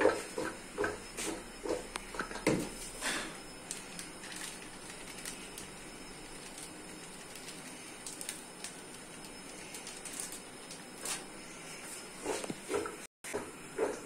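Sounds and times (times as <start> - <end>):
packet crinkling and tapping: 3.7 - 5.7, 6.3 - 11.2
powder ticks and rustles: 3.7 - 11.2.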